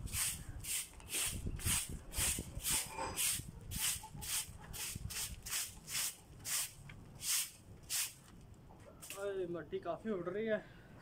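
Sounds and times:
broom sweeping concrete: 0:00.0 - 0:08.2.

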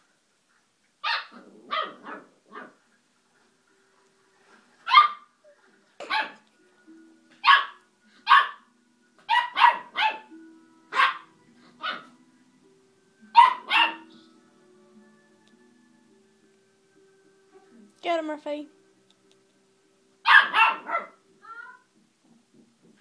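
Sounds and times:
puppy yapping: 0:01.0 - 0:02.8, 0:04.9 - 0:05.3, 0:06.0 - 0:06.4, 0:07.4 - 0:08.6, 0:09.3 - 0:10.3, 0:10.9 - 0:12.1, 0:13.4 - 0:14.1, 0:20.3 - 0:21.8.

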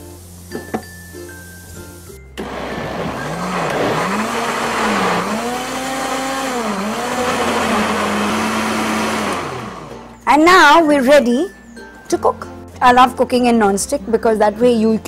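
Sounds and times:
mixer grinder motor running: 0:02.4 - 0:10.2.

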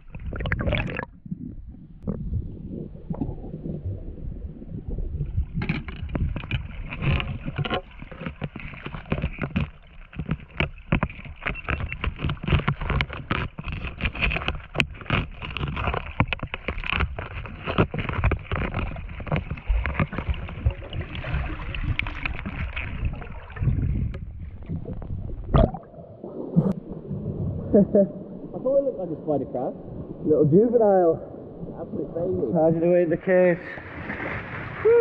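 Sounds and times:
low rumble of moving water: 0:00.0 - 0:35.0
dense irregular crackling clicks: 0:05.3 - 0:25.6.

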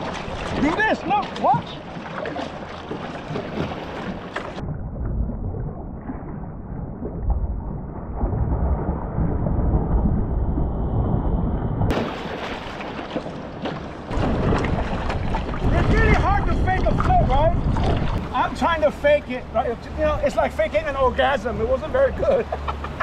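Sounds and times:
water splashing and churning: 0:00.0 - 0:23.0
wind on microphone: 0:14.1 - 0:18.4.

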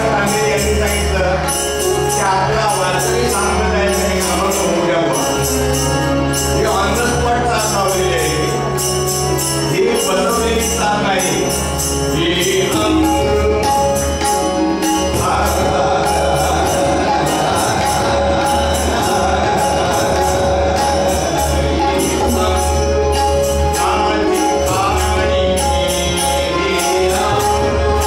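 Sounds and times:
man singing devotional song: 0:00.0 - 0:08.8, 0:09.7 - 0:28.0
tabla: 0:00.0 - 0:28.0.

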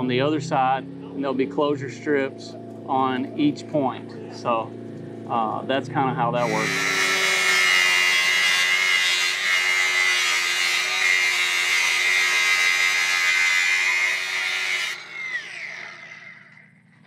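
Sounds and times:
angle grinder grinding steel: 0:06.4 - 0:16.9.

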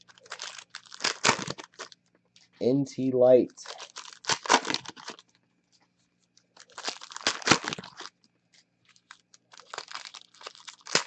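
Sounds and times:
foil wrappers crinkling and tearing: 0:00.0 - 0:02.0, 0:03.6 - 0:05.3, 0:06.5 - 0:08.1, 0:08.9 - 0:11.0.

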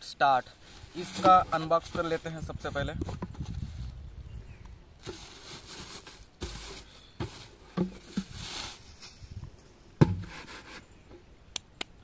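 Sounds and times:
knocks on plastic can: 0:10.0 - 0:10.3.

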